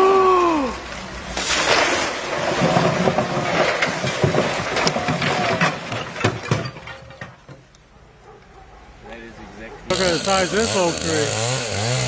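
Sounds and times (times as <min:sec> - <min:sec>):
tree crashing onto tiled roof: 0:01.3 - 0:07.7.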